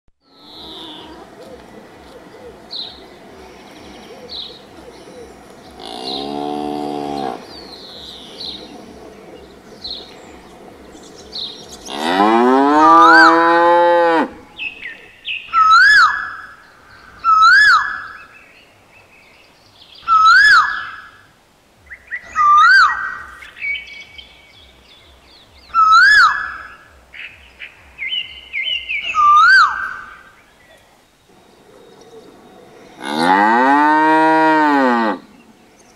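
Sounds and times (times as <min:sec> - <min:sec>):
cow mooing: 0:00.3 - 0:01.3, 0:05.8 - 0:07.5, 0:11.8 - 0:14.6, 0:32.9 - 0:35.3
bird calling up-and-down note: 0:14.6 - 0:16.6, 0:17.2 - 0:18.3, 0:20.0 - 0:21.2, 0:22.0 - 0:23.4, 0:25.7 - 0:26.8, 0:28.6 - 0:32.4.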